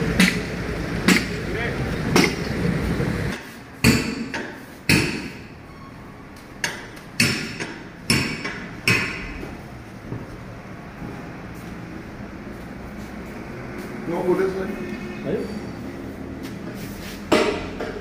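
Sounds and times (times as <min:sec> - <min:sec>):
diesel engine rumble: 0:00.0 - 0:03.8, 0:07.8 - 0:18.0.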